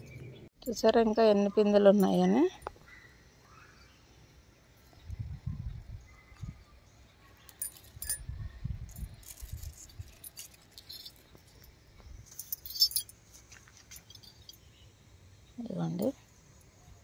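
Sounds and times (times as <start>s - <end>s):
light clicks and clinks: 7.3s - 14.8s.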